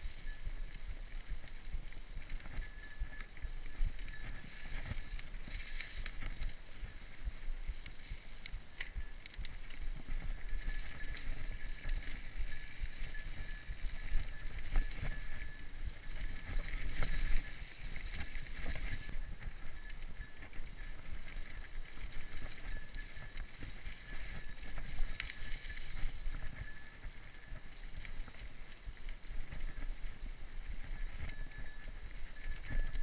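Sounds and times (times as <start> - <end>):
bike tyres crunching dry leaves: 0.0 - 26.6
bike clicks and rattles: 0.0 - 33.0.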